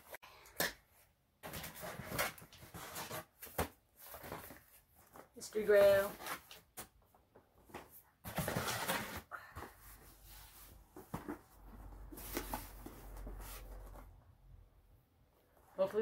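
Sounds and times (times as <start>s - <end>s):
cardboard rustling and scraping: 1.4s - 6.9s, 7.6s - 14.2s.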